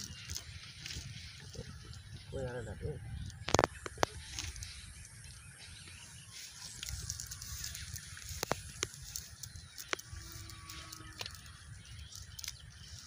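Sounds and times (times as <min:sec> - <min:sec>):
sharp clicks and crackles: 0:03.2 - 0:04.8, 0:06.6 - 0:13.0.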